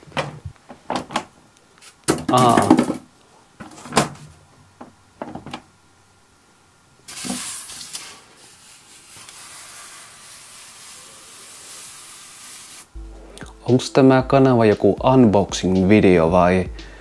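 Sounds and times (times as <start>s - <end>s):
hand rubbing styrofoam: 7.1s - 12.9s.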